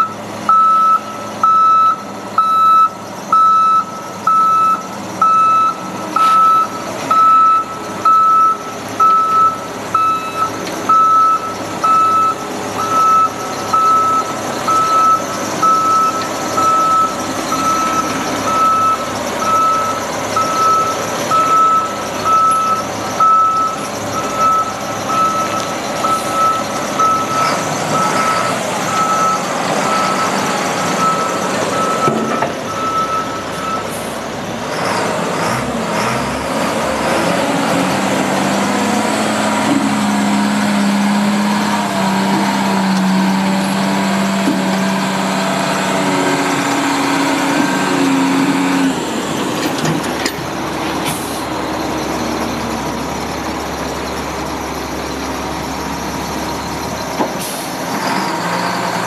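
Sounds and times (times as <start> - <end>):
backup alarm beeping: 0.0 - 33.9
diesel engine running: 0.0 - 59.0.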